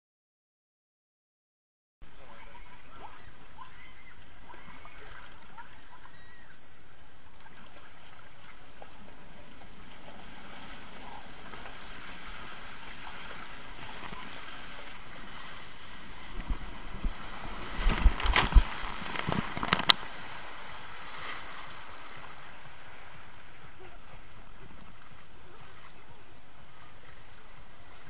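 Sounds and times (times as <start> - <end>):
water rushing through slide tube: 2.1 - 28.0
high squeak: 6.0 - 7.3.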